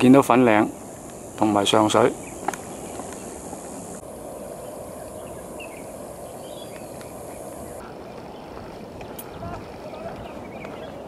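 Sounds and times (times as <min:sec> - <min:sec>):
high insect buzz: 0:00.0 - 0:07.8.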